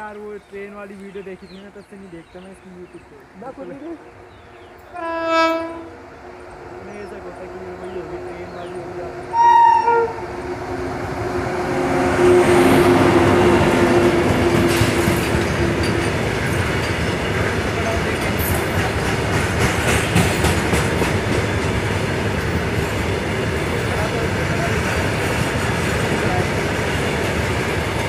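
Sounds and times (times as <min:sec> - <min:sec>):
electric locomotive hum: 0:00.0 - 0:28.0
wheels clacking over rail joints: 0:13.4 - 0:28.0.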